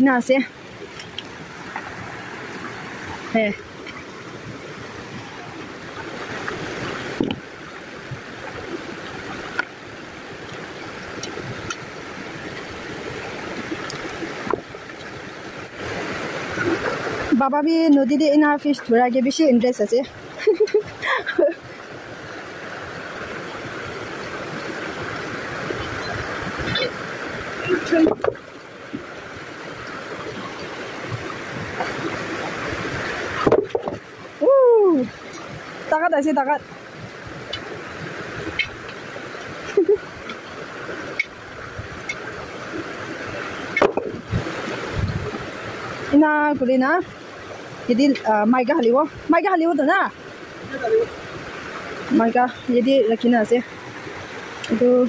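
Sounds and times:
stream running over stones: 0.0 - 55.0
water sloshing around wading person: 0.0 - 55.0.

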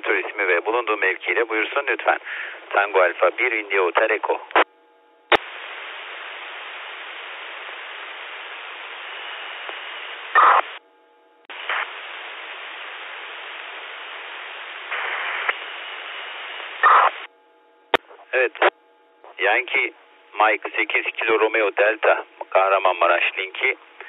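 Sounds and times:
radio static hiss: 0.0 - 4.7, 5.3 - 10.8, 11.5 - 17.3, 17.9 - 24.0
burst of radio noise: 10.2 - 10.8, 11.6 - 12.0, 14.8 - 17.3.

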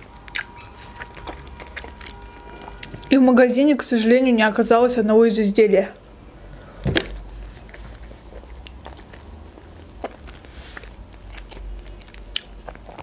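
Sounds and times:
quiet chewing: 0.0 - 3.1, 6.0 - 13.0.

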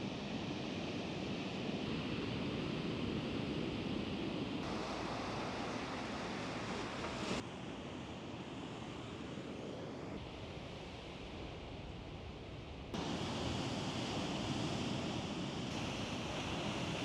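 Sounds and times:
ocean waves breaking: 13.0 - 17.0.

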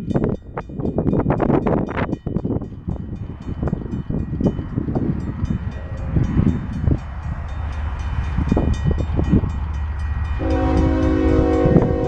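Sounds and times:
freight train low rumble: 0.0 - 12.0
locomotive air horn chord: 10.4 - 12.0.

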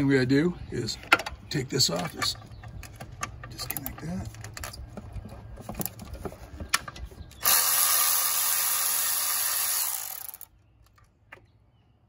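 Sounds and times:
cordless electric ratchet running: 7.4 - 10.5.

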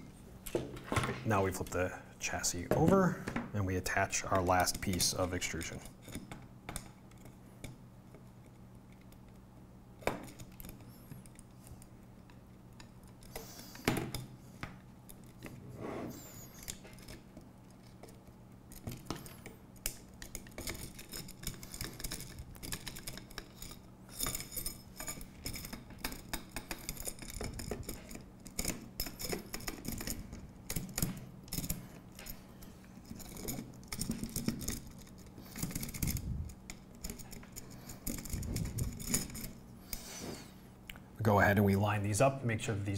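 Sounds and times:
small metallic clicks and rattles: 10.0 - 15.6, 16.4 - 40.1.

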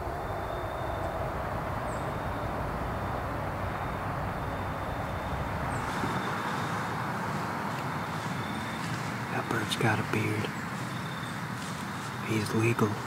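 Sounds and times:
low rumble: 0.0 - 9.3
wind rushing through trees: 0.0 - 13.0.

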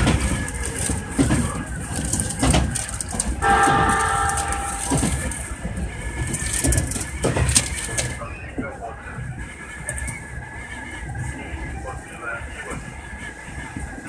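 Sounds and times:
wheels knocking on track: 0.0 - 7.6
electric train rattling: 0.0 - 14.0
train horn: 3.4 - 5.5.

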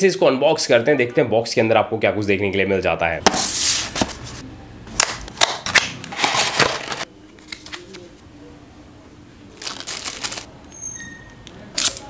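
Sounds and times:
plastic bag crinkling: 9.6 - 10.5.

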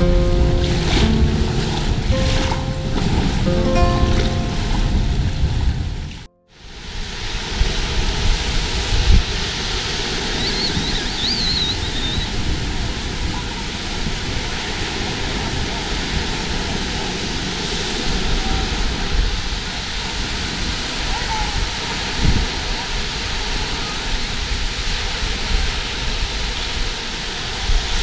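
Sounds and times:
wind buffeting microphone: 0.0 - 6.3, 7.2 - 23.6
surf washing on beach: 0.0 - 28.0
high wavering whistle: 10.4 - 12.3.

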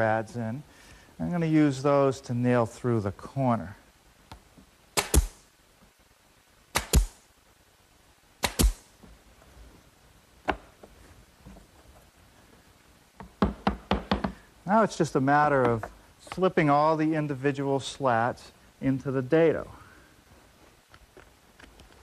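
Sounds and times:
nail gun firing: 5.0 - 5.5, 6.7 - 7.2, 8.4 - 8.9.

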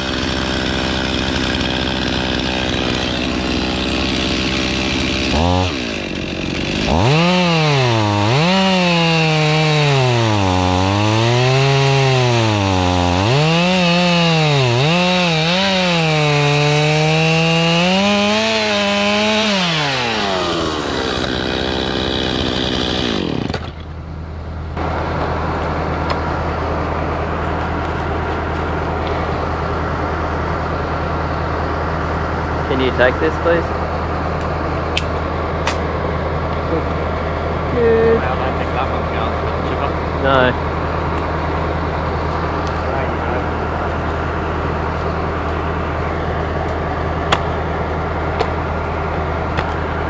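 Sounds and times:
chainsaw cutting wood: 0.0 - 23.9, 46.3 - 47.6
low engine hum: 0.0 - 50.0.

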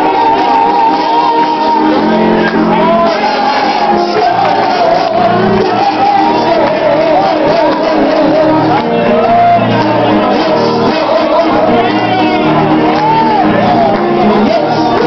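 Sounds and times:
congregation singing and shouting: 0.0 - 15.0
live worship music: 0.0 - 15.0.

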